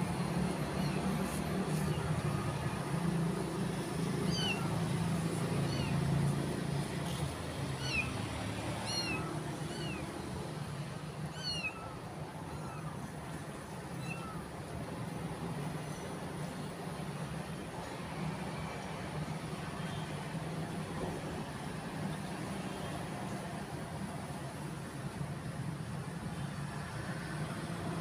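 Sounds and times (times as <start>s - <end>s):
kitten mewing: 4.3s - 4.7s, 5.6s - 6.0s, 8.8s - 10.0s.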